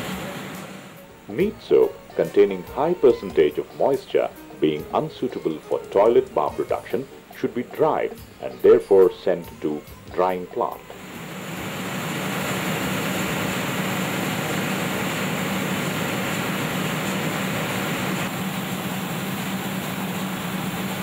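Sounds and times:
steady machine hum: 0:00.0 - 0:21.0
machinery rushing noise: 0:10.8 - 0:21.0.

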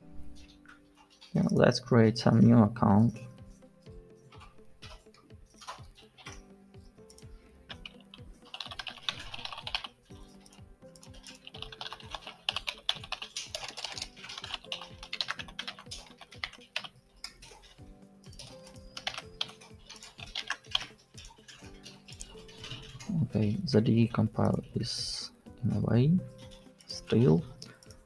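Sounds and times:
background music with held notes: 0:00.0 - 0:28.0
keyboard typing: 0:04.2 - 0:24.8, 0:26.2 - 0:28.0.

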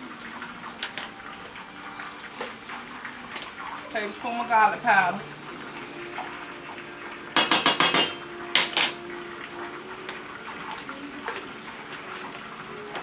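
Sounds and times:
butter bubbling in pan: 0:00.0 - 0:13.0
metal spoon tapping skillet: 0:07.4 - 0:09.0.

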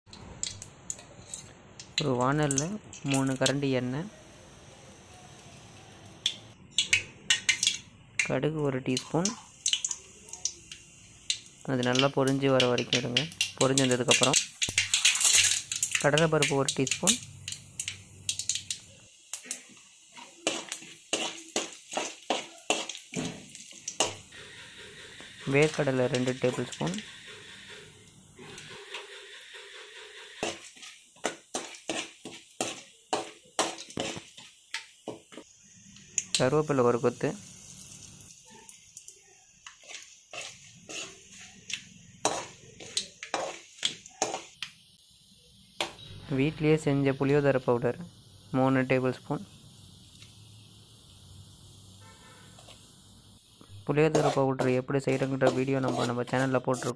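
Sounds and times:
spoon stirring pan: 0:00.1 - 0:03.6, 0:06.2 - 0:44.8, 0:52.0 - 0:56.9
seeds popping in hot oil: 0:00.1 - 0:04.0, 0:05.4 - 0:56.9
metal spoon scraping pan: 0:00.9 - 0:01.6, 0:20.4 - 0:23.2, 0:23.9 - 0:34.4, 0:39.6 - 0:44.5, 0:53.8 - 0:56.9.

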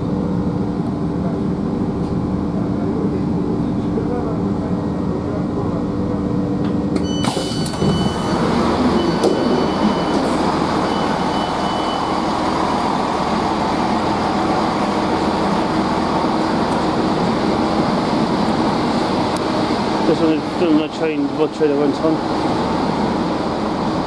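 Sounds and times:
idling train engine rumble: 0:00.0 - 0:24.0
train door clunk: 0:06.6 - 0:11.7
door warning tone beeping: 0:07.0 - 0:12.8.

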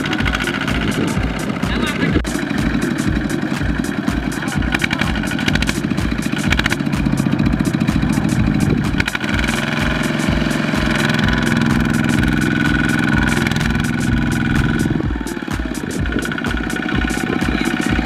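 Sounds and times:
diesel tractor engine running: 0:00.0 - 0:18.0.

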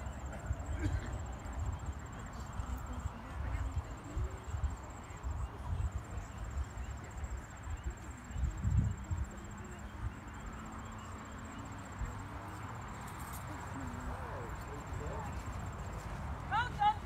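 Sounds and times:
wind buffeting microphone: 0:00.0 - 0:10.5
crickets chirping: 0:00.0 - 0:17.0.

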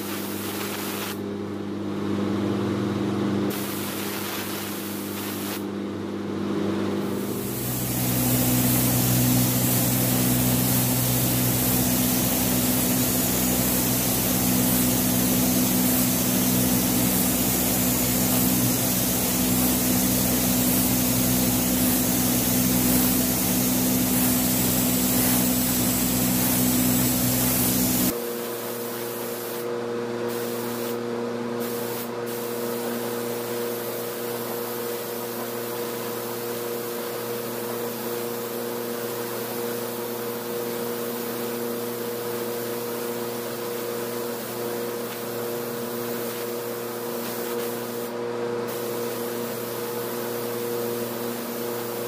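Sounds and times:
paint spray gun hissing: 0:00.0 - 0:01.2, 0:03.5 - 0:05.6, 0:07.2 - 0:29.7, 0:30.3 - 0:31.0, 0:31.6 - 0:48.1, 0:48.7 - 0:52.0
low machinery hum: 0:01.2 - 0:28.8.

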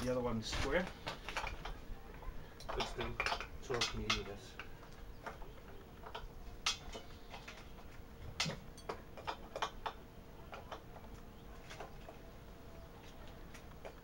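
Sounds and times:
metal clicks and ticks: 0:02.6 - 0:11.2.

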